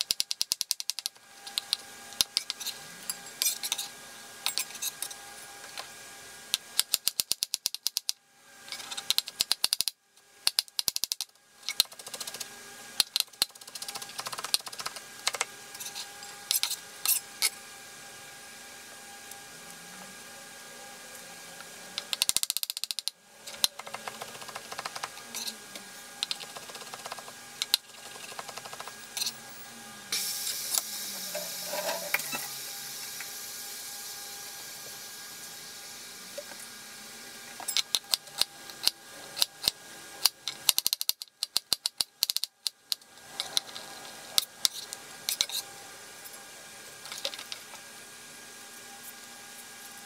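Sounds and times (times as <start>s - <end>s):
hiss: 30.1s - 36.3s.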